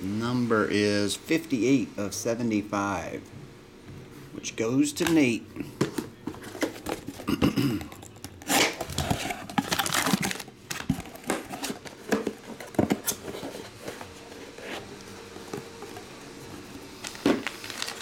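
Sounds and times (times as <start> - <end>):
packaging crinkling: 6.3 - 14.7, 17.0 - 18.0.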